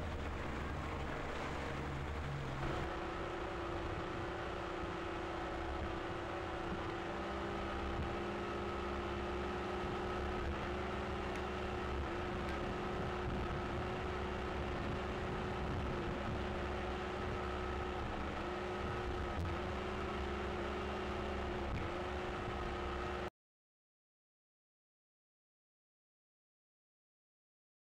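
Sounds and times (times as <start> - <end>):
outboard engine running: 0.0 - 6.9
wind: 0.0 - 23.3.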